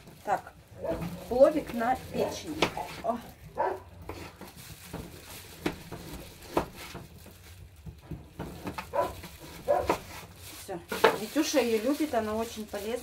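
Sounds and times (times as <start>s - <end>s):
knife slicing raw liver: 8.9s - 10.3s.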